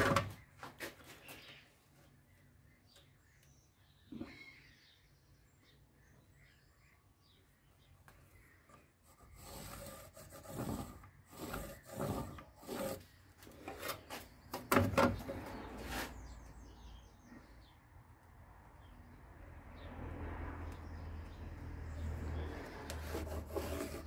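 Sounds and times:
saw blade scraping over timber: 0:09.0 - 0:14.4, 0:15.4 - 0:16.4, 0:22.5 - 0:24.0.

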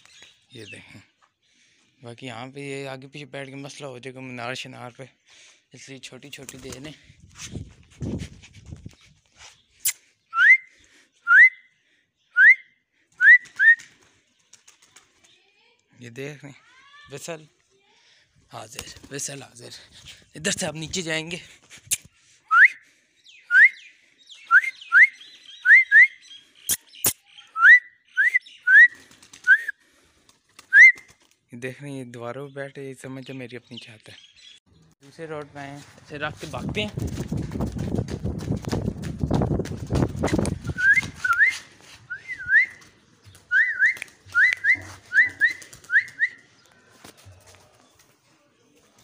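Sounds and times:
person whistling: 0:10.4 - 0:10.7, 0:22.5 - 0:22.8, 0:29.5 - 0:29.7, 0:40.7 - 0:42.8, 0:43.5 - 0:46.4
short rising whistles: 0:40.6 - 0:42.9.

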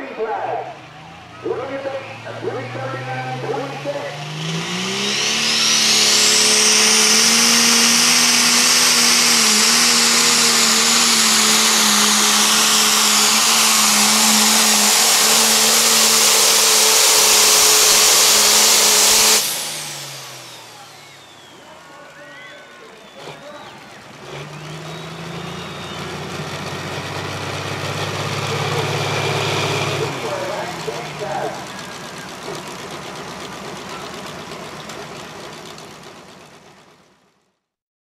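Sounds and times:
diesel engine at full throttle: 0:00.0 - 0:37.5
turbo whine: 0:01.0 - 0:24.0.

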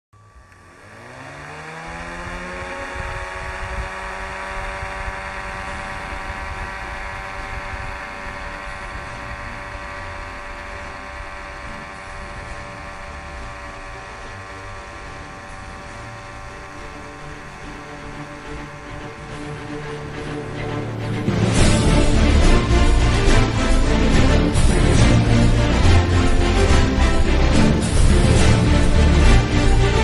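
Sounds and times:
small motor whining: 0:00.2 - 0:30.0.

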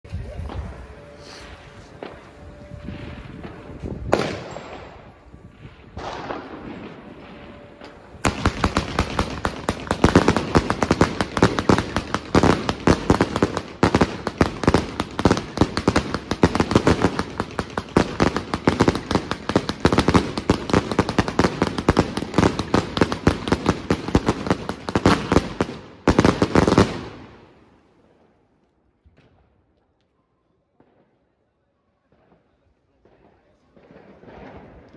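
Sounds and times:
firework crackling: 0:00.1 - 0:27.5
firework cake firing shots: 0:03.0 - 0:05.0, 0:06.0 - 0:27.1.

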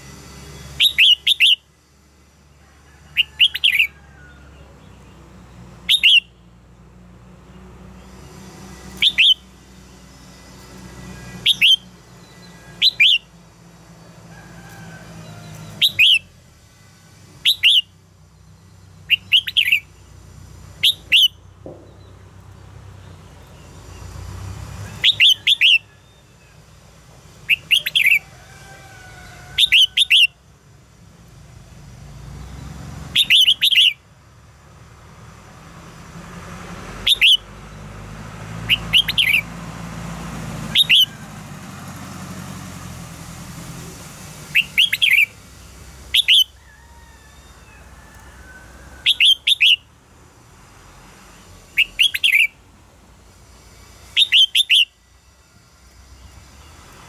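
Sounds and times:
bulbul singing whistled notes: 0:00.4 - 0:01.7, 0:05.8 - 0:06.5, 0:08.0 - 0:13.4, 0:15.4 - 0:16.4, 0:17.4 - 0:20.2, 0:20.8 - 0:22.2, 0:24.9 - 0:26.8, 0:27.4 - 0:28.2, 0:32.4 - 0:34.0, 0:37.0 - 0:37.5, 0:38.6 - 0:39.5, 0:40.7 - 0:41.1, 0:44.5 - 0:46.6, 0:49.0 - 0:49.9, 0:51.6 - 0:52.6, 0:54.0 - 0:55.0.

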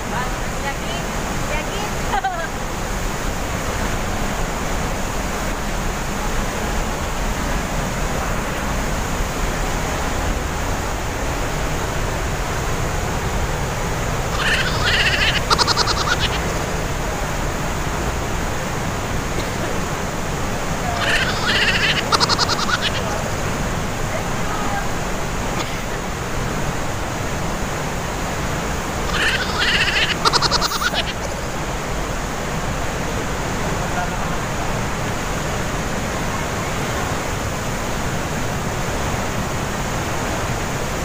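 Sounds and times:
waterfall rushing: 0:00.0 - 0:41.0
high-pitched call with rattle: 0:14.3 - 0:16.5, 0:21.0 - 0:23.1, 0:29.1 - 0:31.2.

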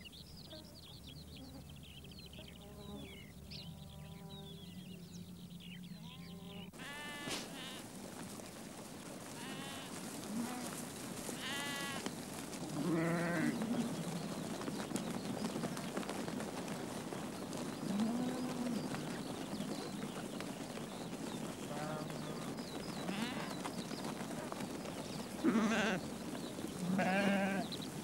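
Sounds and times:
sheep bleating: 0:06.0 - 0:07.8, 0:09.4 - 0:10.7, 0:11.4 - 0:12.1, 0:12.7 - 0:13.7, 0:23.1 - 0:23.5, 0:25.4 - 0:26.0, 0:26.8 - 0:27.7.

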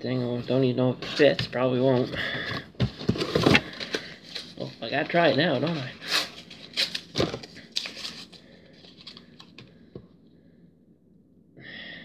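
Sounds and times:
wrapper tearing and crinkling: 0:03.4 - 0:09.2.

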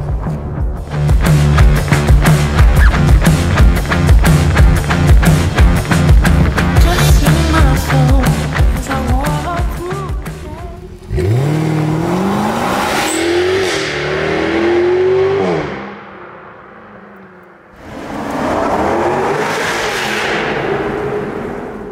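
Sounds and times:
car engine accelerating in tunnel: 0:10.4 - 0:21.9.

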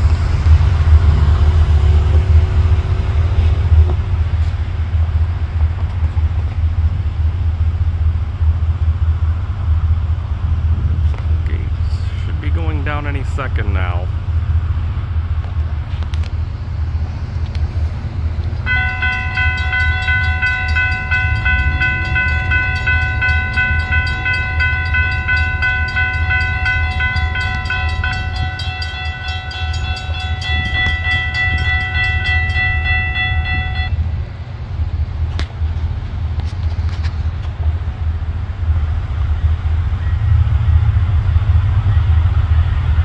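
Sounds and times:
train horn blast: 0:18.7 - 0:34.1.

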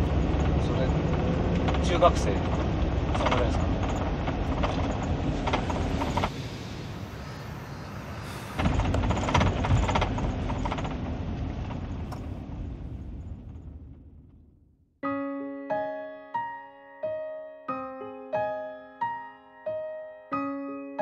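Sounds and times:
vehicle rumbling: 0:00.0 - 0:15.0.

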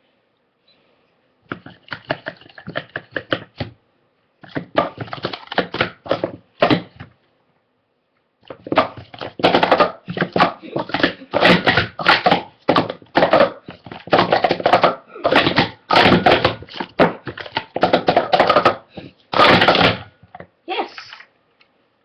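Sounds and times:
plastic cups clattering: 0:01.5 - 0:03.7, 0:04.4 - 0:07.1, 0:08.5 - 0:21.2.

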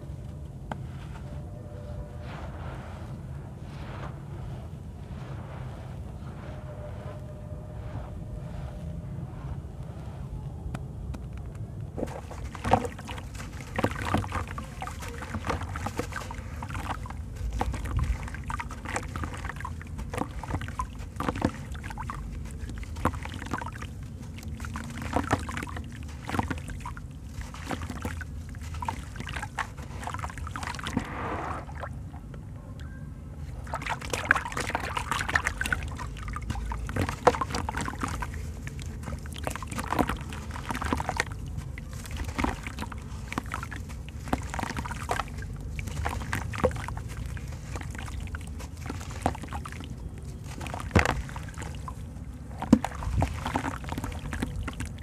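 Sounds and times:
grains pattering into water: 0:12.0 - 0:31.9, 0:33.6 - 0:55.0.

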